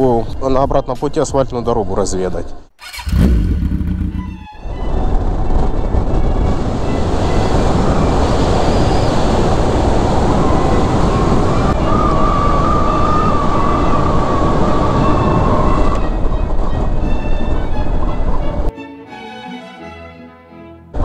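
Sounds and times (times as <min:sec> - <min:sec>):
motorcycle engine and road noise: 0:02.8 - 0:11.8
wind rush over helmet microphone: 0:03.1 - 0:18.7.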